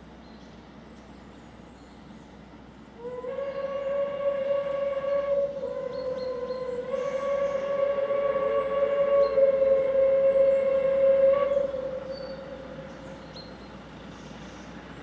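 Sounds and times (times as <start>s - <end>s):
steam locomotive whistle: 3.0s - 13.8s.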